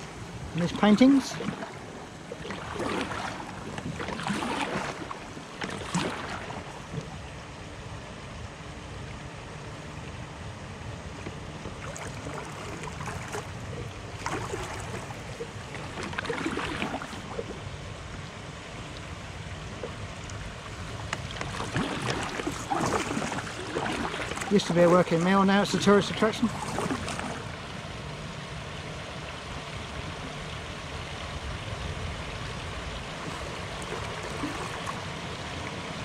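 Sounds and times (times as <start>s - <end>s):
soft paddle splashes: 0.0s - 7.4s, 11.1s - 27.8s, 32.4s - 36.0s.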